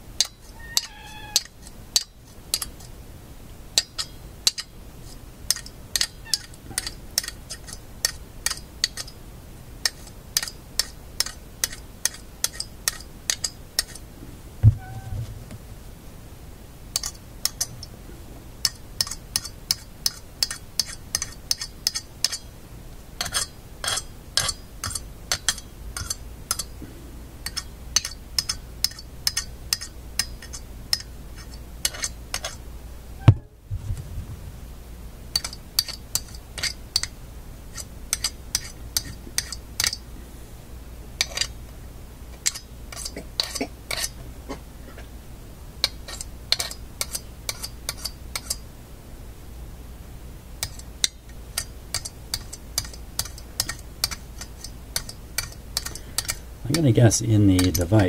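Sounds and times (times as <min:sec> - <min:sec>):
magnet clicking against metal: 0:05.5 - 0:09.2, 0:27.4 - 0:31.1, 0:35.4 - 0:37.2, 0:37.8 - 0:40.0, 0:50.6 - 0:56.4
low thump: 0:14.6 - 0:15.6, 0:33.2 - 0:34.6.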